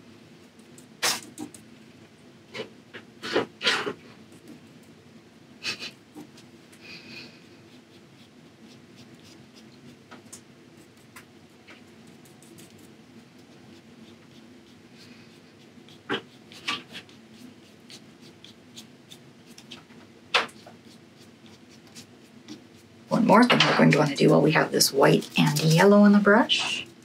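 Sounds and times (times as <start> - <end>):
low room hum: 0.0 - 27.0
paintbrush strokes on paper: 6.2 - 27.0.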